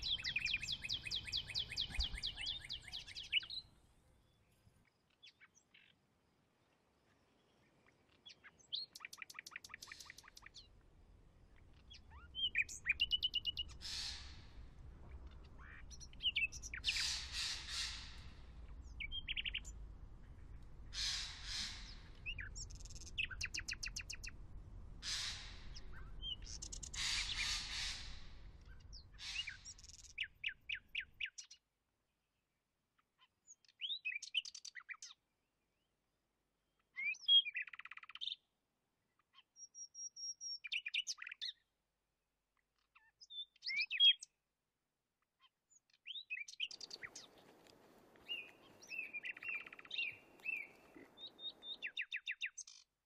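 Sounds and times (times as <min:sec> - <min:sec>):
birds chirping and trilling: 0:00.0 - 0:03.7, 0:07.4 - 0:10.8, 0:11.4 - 0:31.6, 0:45.8 - 0:52.9
low background rumble: 0:10.8 - 0:29.8.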